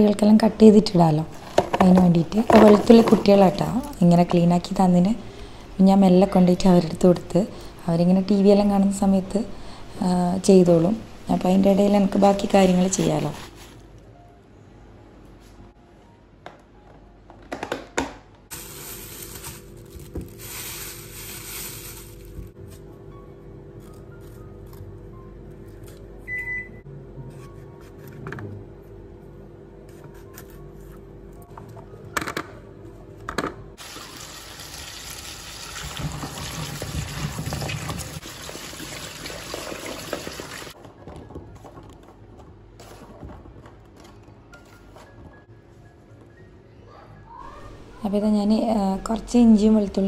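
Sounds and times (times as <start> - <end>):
plastic bag crinkling: 18.5 - 22.5.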